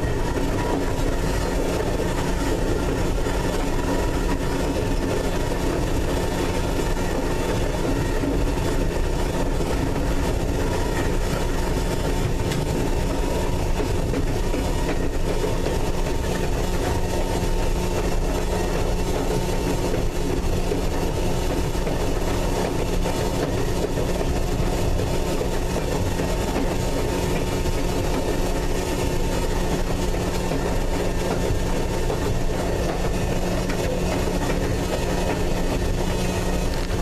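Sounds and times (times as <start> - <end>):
train running on track: 0.0 - 37.0.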